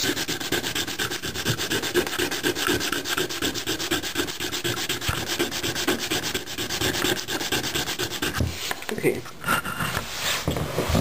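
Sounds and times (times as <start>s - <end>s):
metal rasping on sandpaper: 0.0s - 8.4s.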